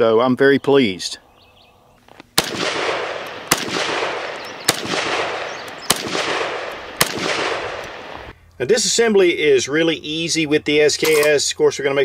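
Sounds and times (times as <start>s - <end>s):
rifle shots echoing: 2.3s - 8.3s.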